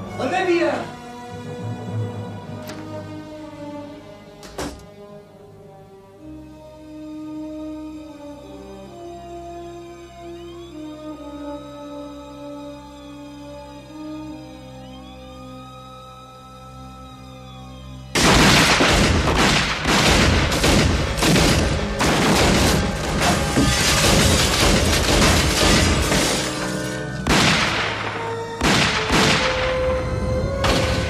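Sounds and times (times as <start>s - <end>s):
dramatic music: 0.0s - 31.0s
gunfire: 18.2s - 29.8s
glass breaking: 22.4s - 27.1s.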